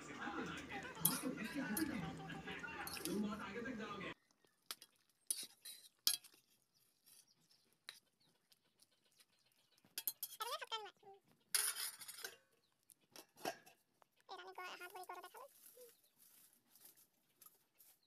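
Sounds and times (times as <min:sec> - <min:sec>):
ladle and lid clinking on pot: 0:01.0 - 0:01.9, 0:02.8 - 0:03.3.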